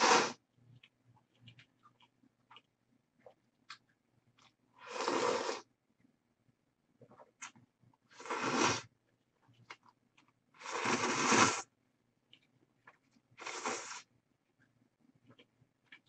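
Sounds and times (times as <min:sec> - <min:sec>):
eating noises: 0:00.0 - 0:03.8.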